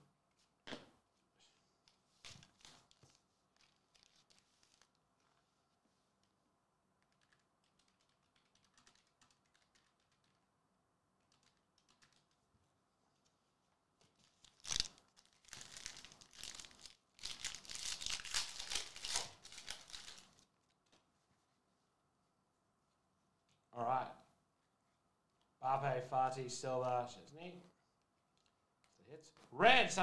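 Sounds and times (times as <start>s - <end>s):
wrapper crinkling: 2.4s - 5.4s, 14.2s - 20.8s
foil pack ripping open: 14.5s - 20.3s.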